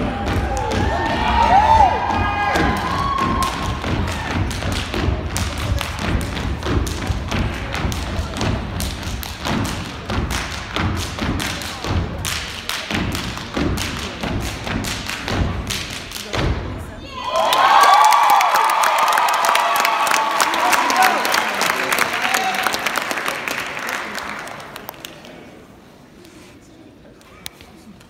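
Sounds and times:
rhythmic stomping on wooden stage: 0.0s - 17.0s.

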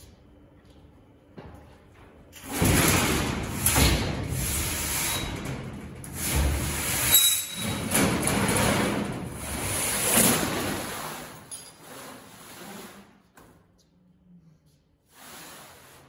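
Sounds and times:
steel sheet scraping on metal: 2.6s - 13.0s.

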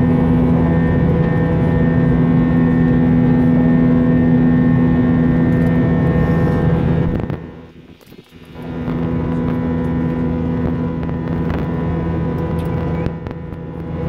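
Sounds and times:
jet engine drone: 0.0s - 14.0s
steady humming tones: 0.0s - 14.0s.

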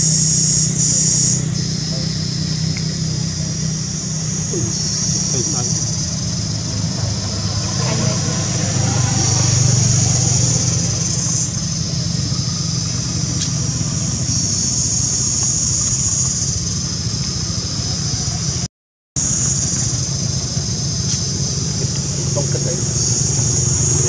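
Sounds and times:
high steady buzz: 0.0s - 24.0s
low engine-like hum: 0.0s - 24.0s.

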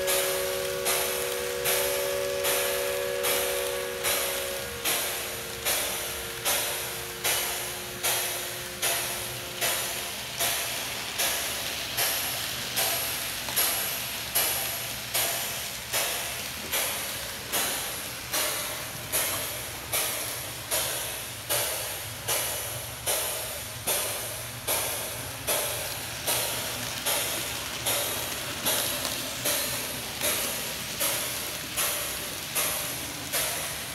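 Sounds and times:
steam whistle chord: 0.0s - 9.4s
steam locomotive exhaust chuffs: 0.0s - 33.9s.

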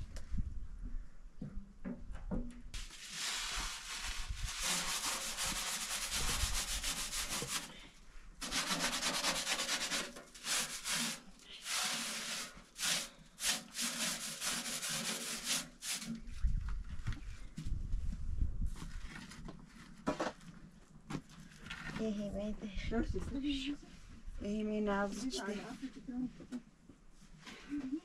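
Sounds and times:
hand scrubbing iron griddle: 2.8s - 7.8s, 8.4s - 16.3s.

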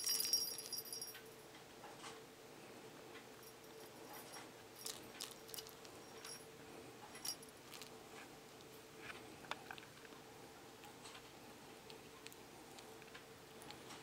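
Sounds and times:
light metallic tinkles: 0.0s - 1.5s, 3.3s - 7.9s
steady low hum: 0.0s - 14.0s.

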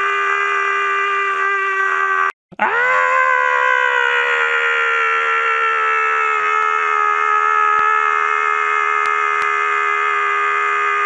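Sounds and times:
person shouting ahh: 0.0s - 3.2s.

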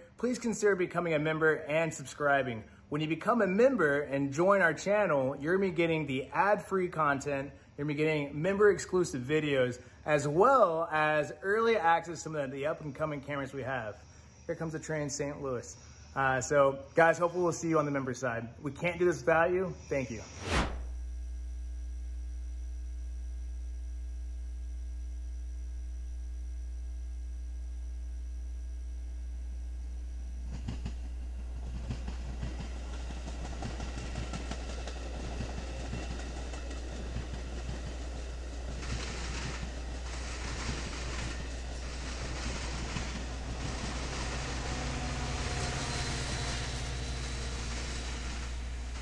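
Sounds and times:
low mains hum: 0.0s - 49.0s
faint steady tones: 19.6s - 49.0s
diesel locomotive engine drone: 20.9s - 49.0s
light hiss: 29.8s - 49.0s
train wheels rumbling on rails: 30.4s - 49.0s.

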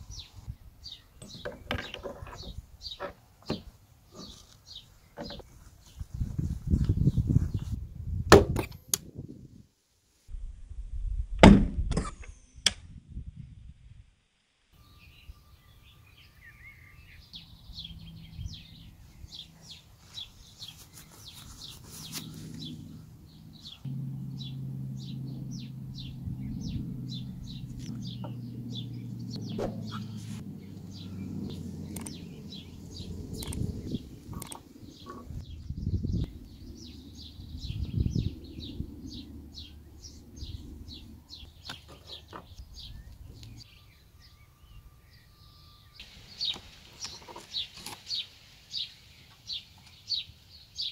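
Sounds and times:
bird chirping: 0.0s - 7.8s, 14.8s - 50.9s
steady low hum: 17.2s - 41.7s.

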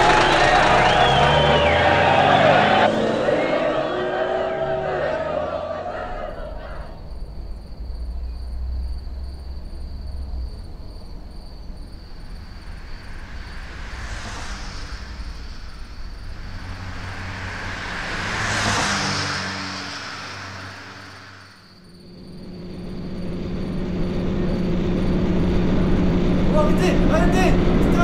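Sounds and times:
low rumble: 0.0s - 27.9s
vehicle passing by: 0.0s - 28.0s.

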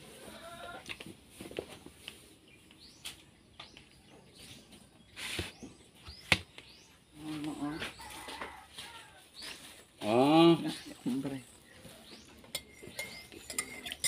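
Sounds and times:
bird chirps: 10.6s - 14.0s
cutlery scraping a plate: 12.4s - 14.0s.

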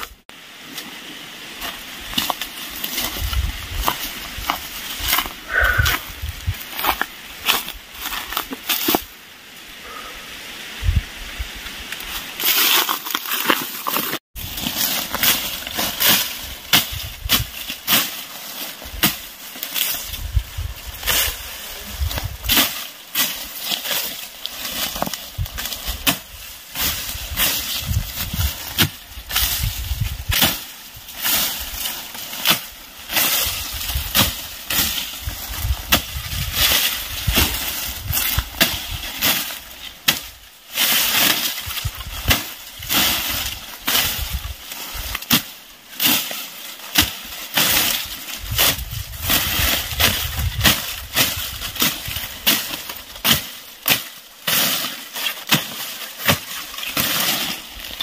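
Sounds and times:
rustle of cut stems: 9.9s - 58.0s
machete chopping dry grass: 12.4s - 21.4s, 22.0s - 58.0s.

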